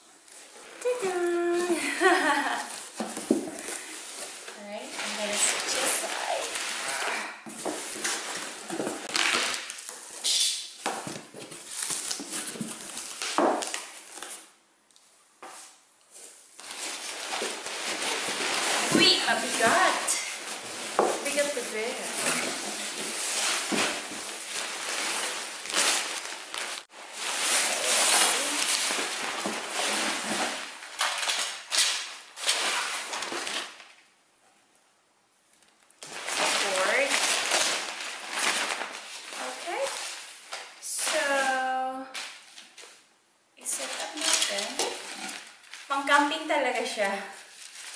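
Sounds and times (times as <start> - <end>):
cardboard scraping and rustling: 16.3 - 31.4.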